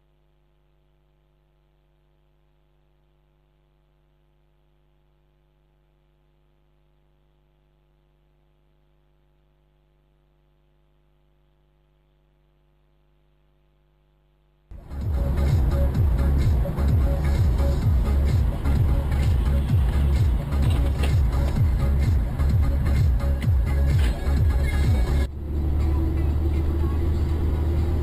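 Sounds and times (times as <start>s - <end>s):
faint electrical hum: 0.0s - 14.8s.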